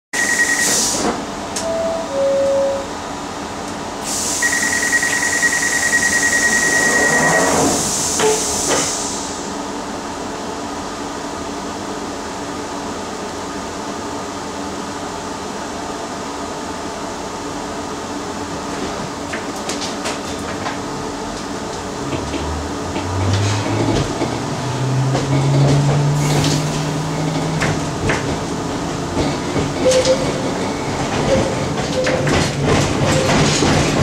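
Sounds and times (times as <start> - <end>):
door closing warning beep: 0.2 - 1.0, 1.6 - 2.9, 4.4 - 7.7
short electronic tones: 1.6 - 3.0, 4.4 - 7.5
hiss of air: 4.0 - 4.6, 7.6 - 9.6
sliding doors knocking shut: 31.1 - 34.0.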